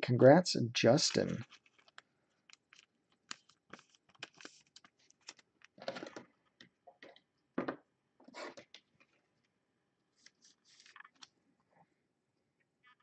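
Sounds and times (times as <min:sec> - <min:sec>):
plastic sleeve crinkling: 0:01.1 - 0:06.6, 0:10.2 - 0:11.4.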